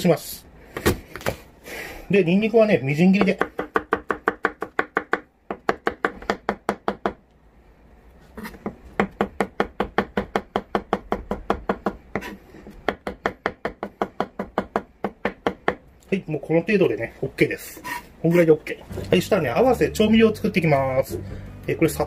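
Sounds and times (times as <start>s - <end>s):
knife chopping on cutting board: 8.4s - 15.8s.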